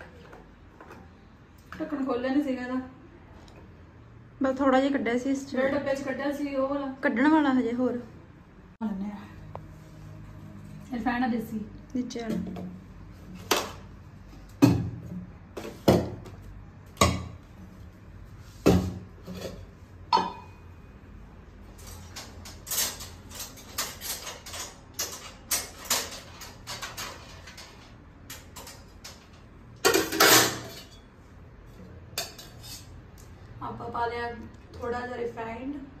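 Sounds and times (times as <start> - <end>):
metal pots and utensils clattering: 18.7 - 20.6, 21.7 - 31.2, 32.1 - 33.0.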